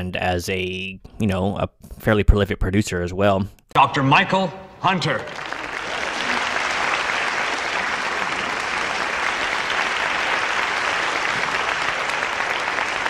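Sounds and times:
audience applause: 5.3s - 13.0s.

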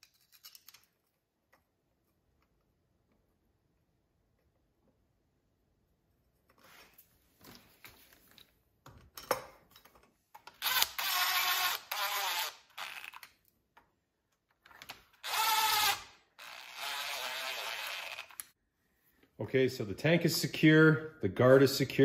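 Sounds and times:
power drill running: 10.6s - 13.2s, 15.2s - 18.4s.

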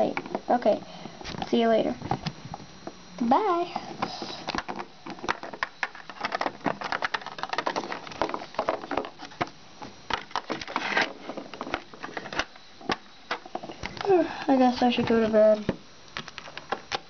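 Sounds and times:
scraping rustle: 10.5s - 12.5s.

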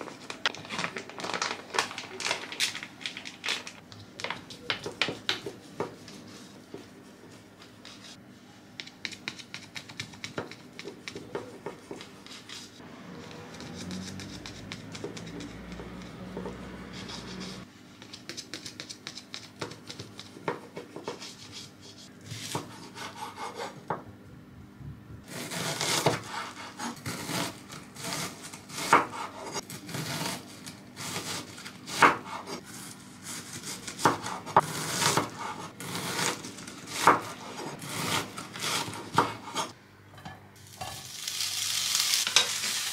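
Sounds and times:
knife cutting onion on board: 8.8s - 12.6s, 13.2s - 24.0s, 25.3s - 39.8s
knife slicing bacon: 25.3s - 39.7s.

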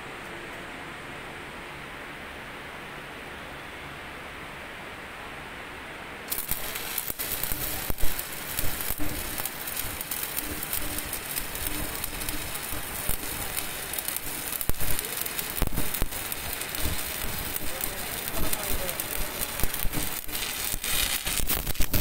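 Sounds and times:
welding arc crackling and popping: 6.3s - 22.0s.

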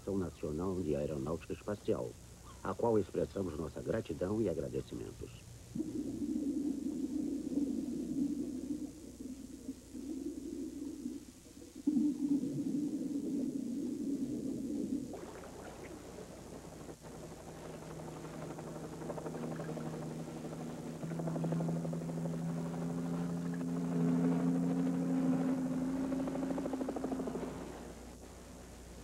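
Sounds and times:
muffled low rumble: 0.0s - 29.0s
helicopter flying: 15.2s - 29.0s.

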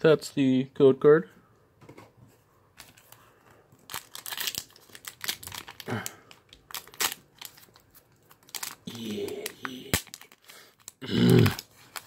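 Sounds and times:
foil wrapper crinkling and tearing: 2.8s - 12.0s.

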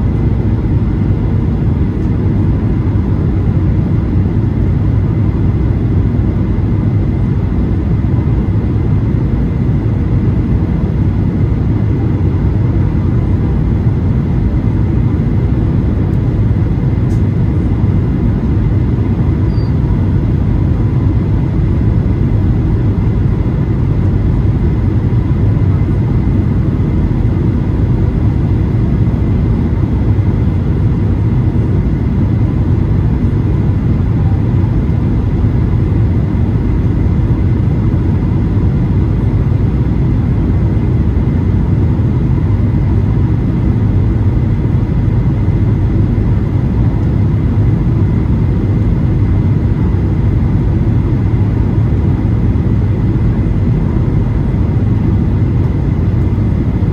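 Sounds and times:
airplane cabin engine roar: 0.0s - 56.9s.

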